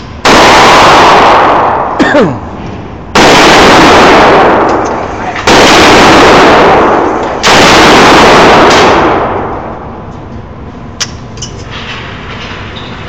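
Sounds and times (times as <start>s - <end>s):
rifle shots echoing: 0.2s - 2.0s, 3.1s - 9.9s.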